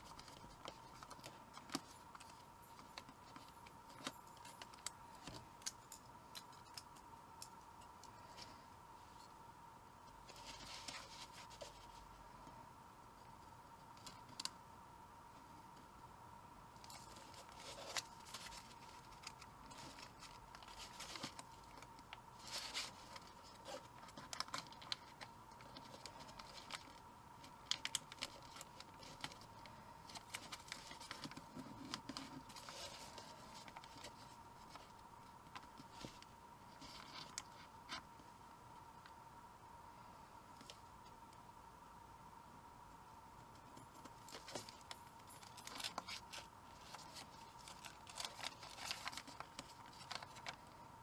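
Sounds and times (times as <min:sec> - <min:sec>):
paper rustling and crinkling: 0:00.0 - 0:05.8, 0:10.2 - 0:12.1, 0:16.8 - 0:38.0, 0:44.0 - 0:50.8.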